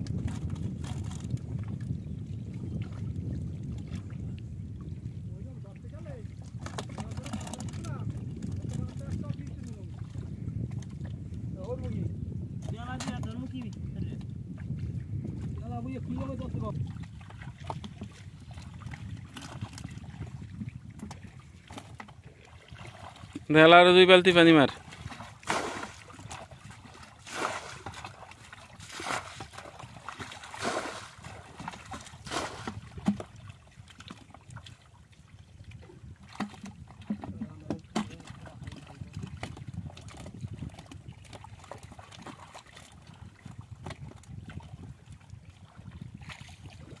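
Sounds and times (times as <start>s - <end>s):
sloshing in muddy water: 14.6s - 47.0s
water thrown from buckets splashing: 21.0s - 34.3s, 36.3s - 38.8s.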